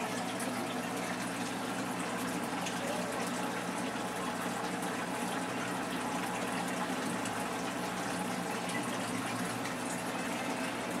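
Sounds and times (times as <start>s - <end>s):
low pump hum: 0.0s - 11.0s.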